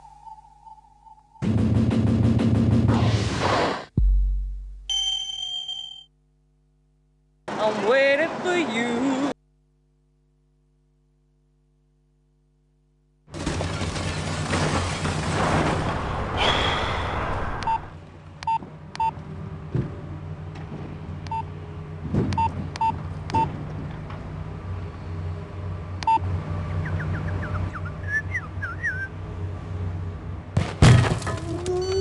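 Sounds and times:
phone keypad beeps: 17.6 - 19.1, 21.3 - 21.5, 22.4 - 23.5, 26.0 - 26.2.

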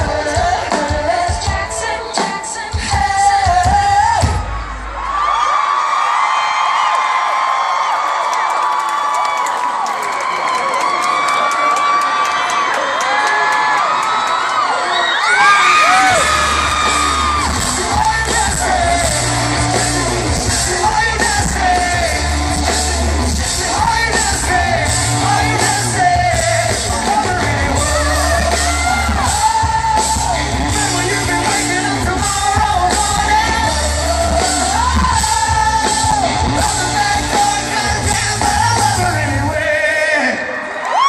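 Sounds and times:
live rock band with vocals: 0.0 - 5.2, 15.2 - 40.9.

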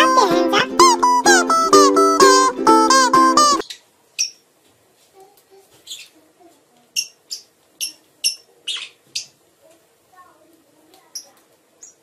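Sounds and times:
plucked-string music: 0.0 - 3.6
parrots chirping: 0.1 - 4.5, 5.8 - 6.2, 6.9 - 9.4.

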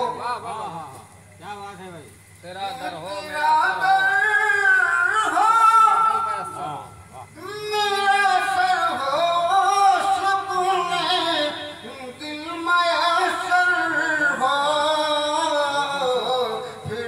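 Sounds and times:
man chanting into a microphone: 2.8 - 17.0.

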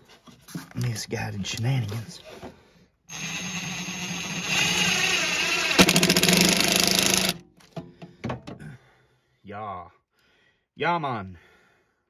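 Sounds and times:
impact driver driving a screw: 3.1 - 7.4.

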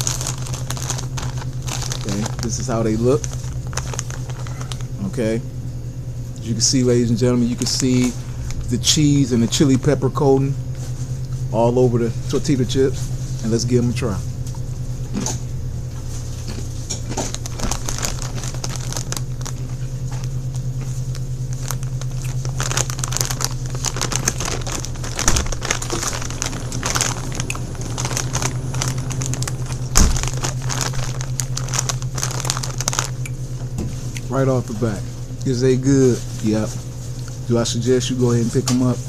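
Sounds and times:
chips being chewed: 0.0 - 5.0, 16.3 - 33.4
plastic chip bag crinkling: 0.0 - 5.2, 6.7 - 10.3, 11.6 - 13.8, 16.0 - 39.0
steady low hum: 0.0 - 39.0.

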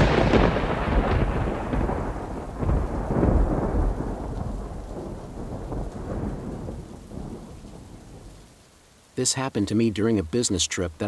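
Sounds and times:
thunder rumbling: 0.0 - 8.6
steady rain: 0.0 - 11.0.

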